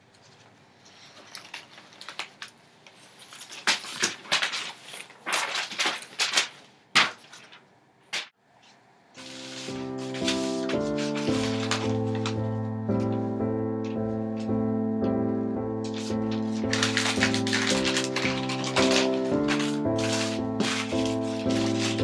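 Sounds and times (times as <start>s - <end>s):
magazine pages tearing: 1.1s - 7.6s, 9.2s - 12.4s, 15.9s - 22.0s
music: 9.2s - 22.0s.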